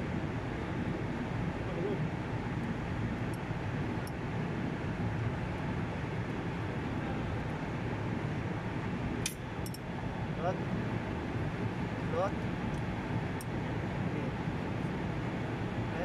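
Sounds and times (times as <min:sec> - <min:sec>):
air conditioning machinery drone: 0:00.0 - 0:16.0.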